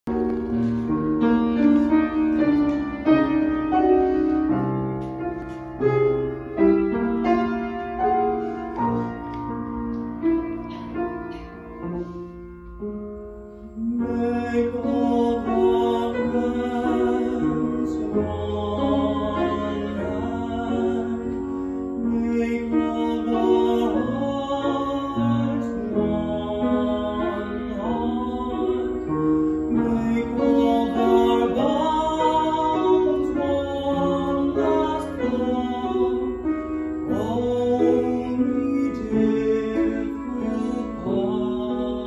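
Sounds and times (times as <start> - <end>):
piano chords: 0.0 - 42.0
person singing with vibrato: 13.4 - 42.0.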